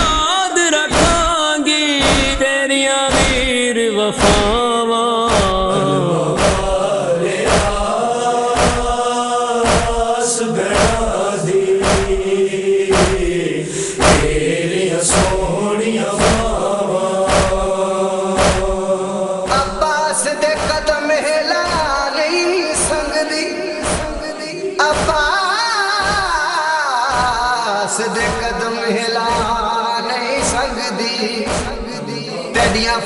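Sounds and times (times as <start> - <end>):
men chanting a lament: 0.0 - 33.0
hands striking chests: 0.9 - 1.3, 2.0 - 2.4, 3.1 - 3.5, 4.2 - 4.6, 5.3 - 6.8, 7.5 - 7.8, 8.6 - 9.0, 9.6 - 10.1, 10.7 - 11.1, 11.8 - 12.2, 12.9 - 13.4, 14.0 - 14.4, 15.1 - 15.4, 16.2 - 16.6, 17.3 - 17.6, 18.4 - 18.8, 19.5 - 19.8.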